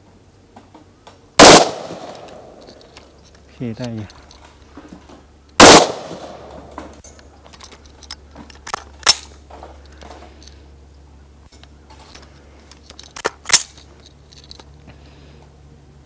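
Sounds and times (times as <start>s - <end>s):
rifle gunshot with echo: 1.4s - 2.5s, 5.6s - 6.7s.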